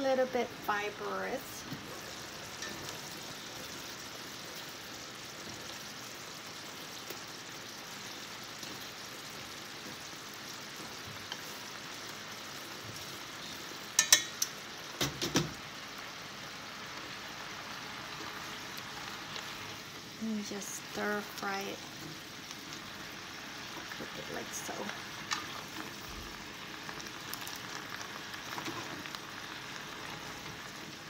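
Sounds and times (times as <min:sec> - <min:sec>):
greens sizzling in oil: 0:00.0 - 0:31.0
utensils knocking against pan: 0:14.0 - 0:15.6.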